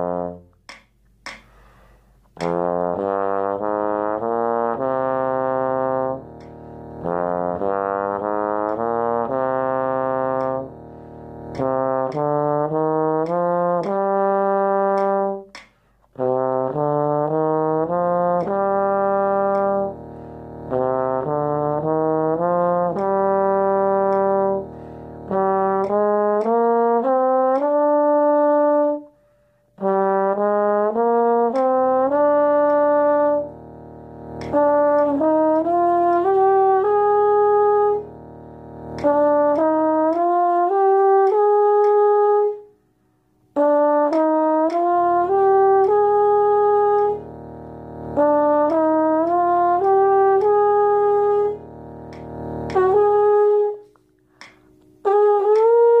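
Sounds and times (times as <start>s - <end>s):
metronome clicks: 0.0s - 3.7s, 5.7s - 29.0s, 30.9s - 42.7s, 43.5s - 56.0s
bass trombone playing scales: 0.0s - 56.0s
steady pitch drone: 43.6s - 53.8s.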